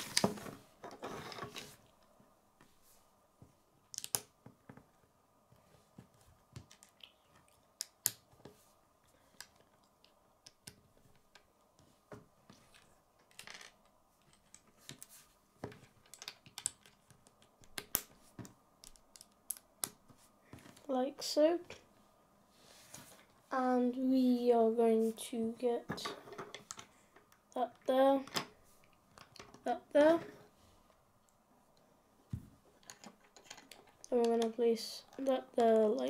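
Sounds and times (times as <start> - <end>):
plastic bricks clicking together: 3.9 - 4.3, 15.8 - 18.2, 18.8 - 20.0, 32.8 - 36.0.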